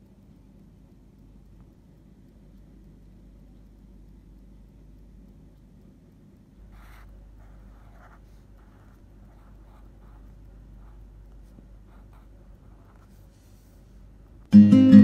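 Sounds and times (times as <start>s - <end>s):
steady low hum: 0.0s - 15.0s
pen scratching on paper: 6.8s - 11.0s.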